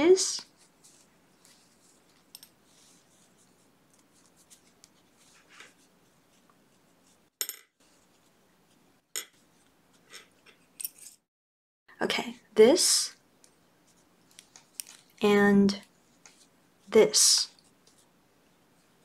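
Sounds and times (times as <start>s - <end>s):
faint yarn rustling: 0.4s - 8.8s.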